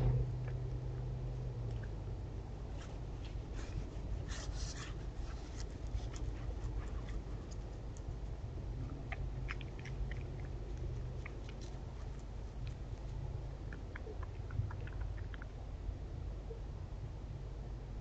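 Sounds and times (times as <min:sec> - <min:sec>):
deer chewing crunchily: 0:03.3 - 0:15.6.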